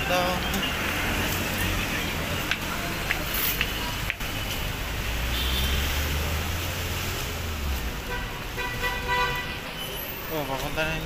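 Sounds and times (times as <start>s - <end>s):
vehicle engine rumble passing: 0.0s - 8.6s
street traffic noise: 0.0s - 11.0s.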